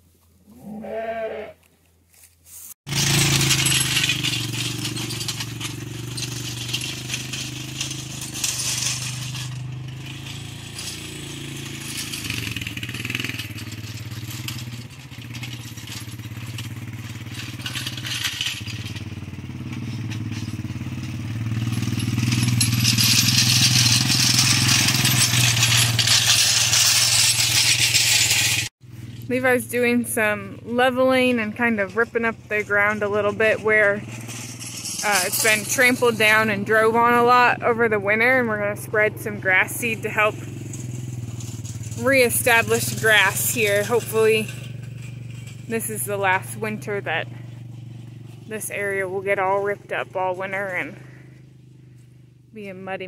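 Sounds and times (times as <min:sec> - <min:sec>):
animal bleat: 0:00.5 - 0:01.7
farm vehicle engine running: 0:02.9 - 0:53.0.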